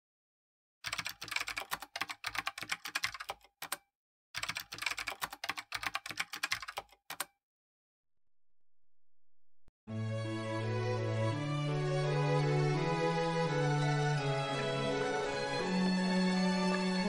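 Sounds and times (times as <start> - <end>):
rapid keyboard typing: 0.8 - 7.4.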